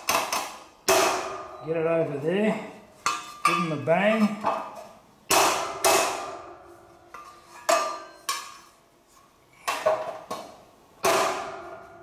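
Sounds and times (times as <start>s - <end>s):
hammer striking steel: 0.0s - 1.6s, 5.3s - 6.6s, 11.0s - 12.0s.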